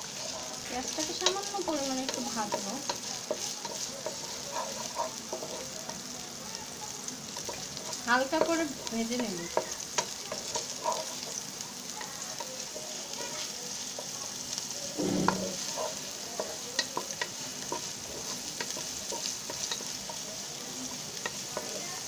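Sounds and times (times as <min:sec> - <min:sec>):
onions sizzling in oil: 0:00.0 - 0:22.0
spatula scraping a pot: 0:00.2 - 0:05.7.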